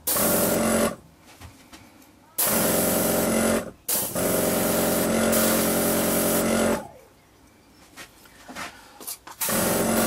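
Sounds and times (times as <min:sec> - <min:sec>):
airbrush compressor humming: 0:00.0 - 0:01.0, 0:02.5 - 0:06.8, 0:09.4 - 0:10.0.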